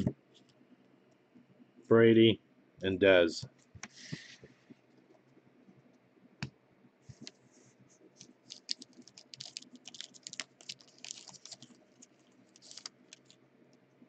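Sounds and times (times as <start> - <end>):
foil wrapper crinkling and tearing: 8.2 - 13.4.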